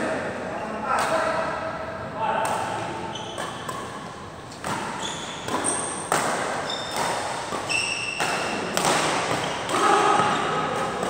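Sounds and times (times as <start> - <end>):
racket striking shuttlecock: 2.4 - 11.0
shoes squeaking on court: 3.0 - 10.9.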